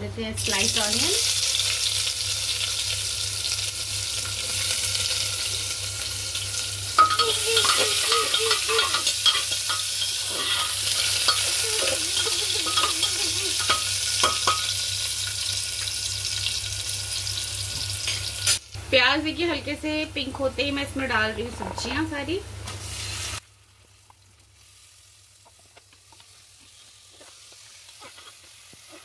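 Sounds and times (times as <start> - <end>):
onions sizzling in oil: 0.4 - 18.8, 20.5 - 29.0
spatula scraping pot: 7.0 - 14.6.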